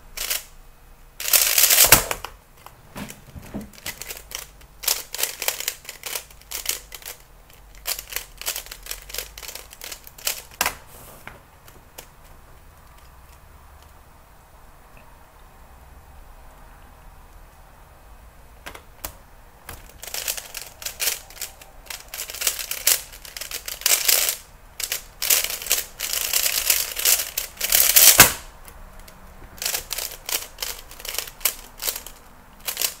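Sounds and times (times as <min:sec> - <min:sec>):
puzzle cube clacking: 0:00.2 - 0:00.5, 0:01.2 - 0:10.8, 0:18.7 - 0:33.0.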